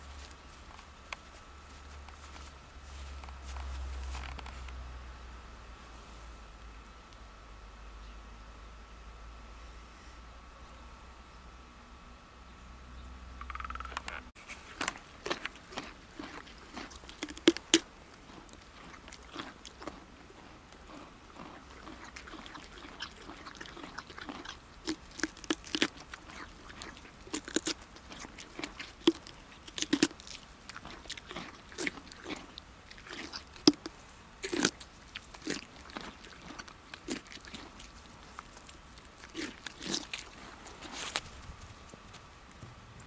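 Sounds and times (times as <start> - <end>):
horse crunching a carrot: 0.0 - 4.9, 13.5 - 42.6.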